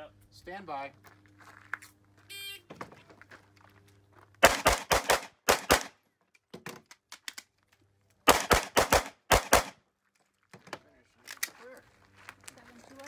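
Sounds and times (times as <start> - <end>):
rapid gunshots: 4.4 - 5.9, 8.3 - 9.7.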